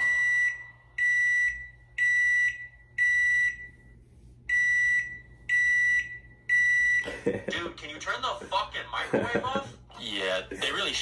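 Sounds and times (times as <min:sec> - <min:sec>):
microwave beeping: 0:00.0 - 0:07.4.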